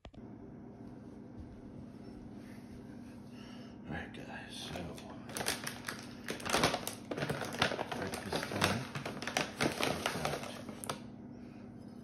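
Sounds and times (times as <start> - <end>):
plastic pouch crinkling: 5.2 - 11.0.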